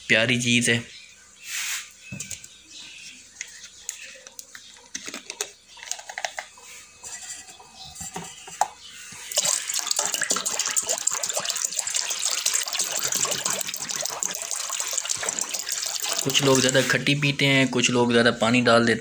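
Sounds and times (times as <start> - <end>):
water pouring into steel bowl: 9.3 - 16.9.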